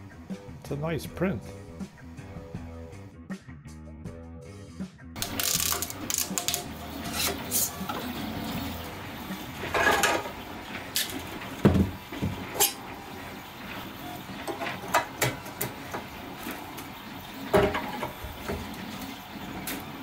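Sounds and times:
plastic parts clicking and clinking: 0:05.2 - 0:06.6.

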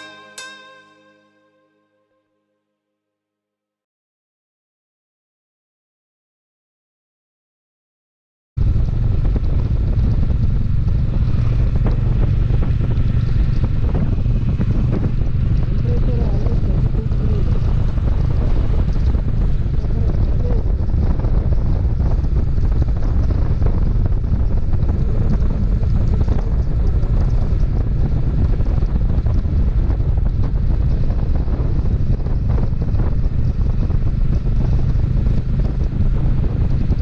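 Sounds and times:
wind buffeting microphone: 0:08.6 - 0:37.0.

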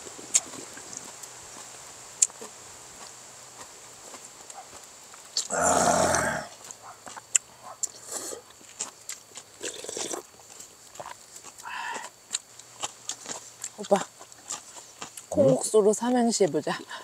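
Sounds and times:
person slurping noodles: 0:05.4 - 0:06.5, 0:09.6 - 0:10.2.

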